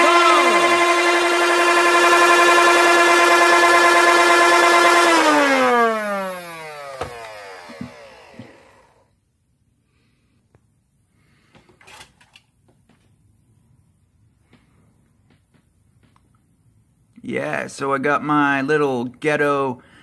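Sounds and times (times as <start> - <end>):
motors whining down: 0.0 - 9.1.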